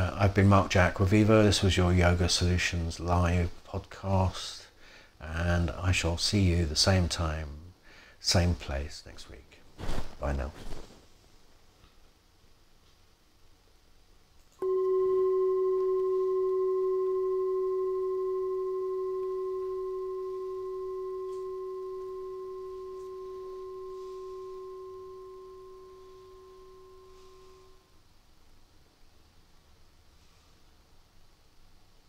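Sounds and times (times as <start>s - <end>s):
bell ringing: 14.6s - 27.8s.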